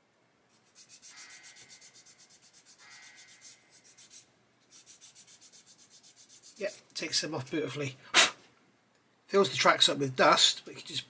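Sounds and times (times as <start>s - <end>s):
sanding stick rubbing plastic: 0.5s - 6.8s.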